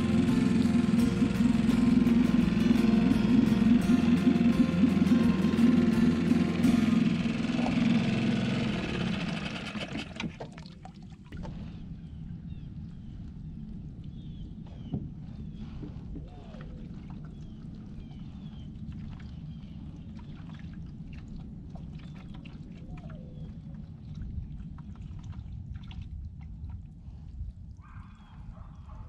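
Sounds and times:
water lapping against a hull: 7.4 - 29.0.

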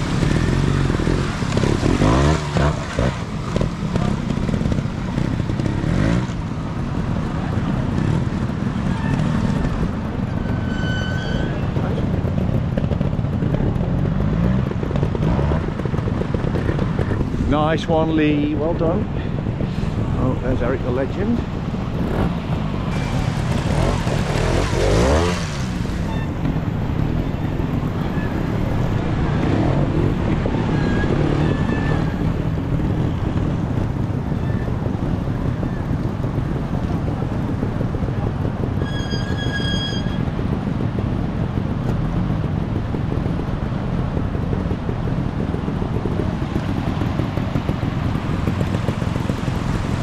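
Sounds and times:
motorcycle engine revving: 0.0 - 50.0
wind: 0.0 - 50.0
stream rushing: 21.5 - 26.8.

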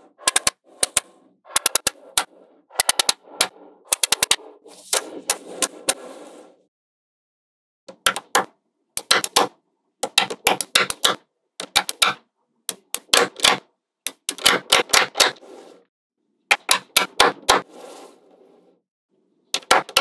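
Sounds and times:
magnetic balls clicking: 0.2 - 4.4, 7.9 - 15.3.

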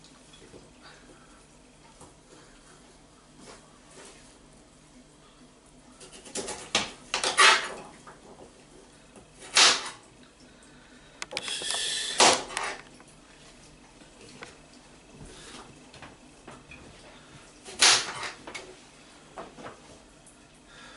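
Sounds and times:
knife scraping on board: 6.0 - 7.8.

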